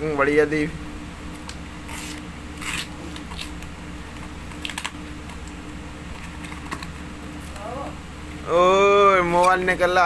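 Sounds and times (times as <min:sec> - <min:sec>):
paper and cardboard tearing: 0:01.8 - 0:03.6.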